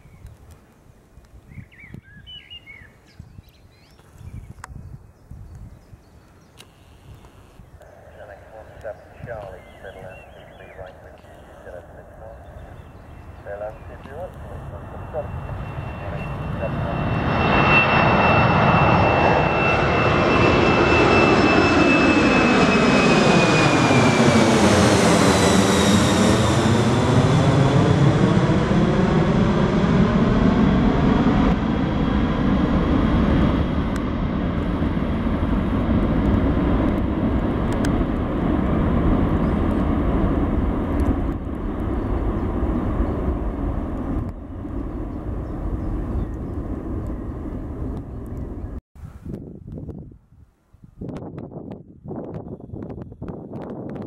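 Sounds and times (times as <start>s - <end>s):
jet plane passing overhead: 7.2s - 48.8s.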